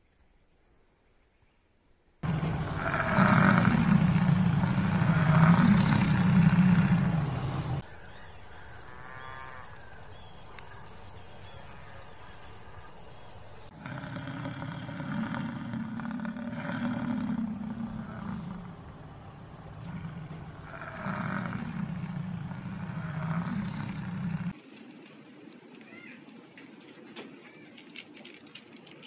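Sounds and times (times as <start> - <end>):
bison bellowing: 2.2 - 9.9, 13.7 - 24.6.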